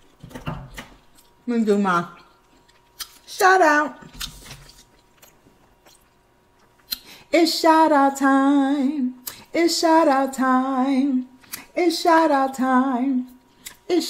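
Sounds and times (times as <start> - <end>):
woman singing unaccompanied: 3.3 - 4.1, 7.3 - 14.0.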